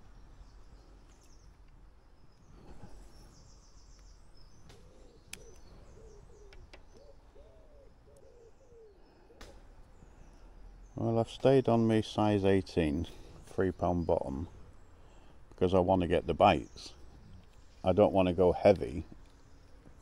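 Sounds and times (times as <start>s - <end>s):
small birds chirping: 0.0s - 20.0s
pigeon cooing: 4.7s - 9.7s.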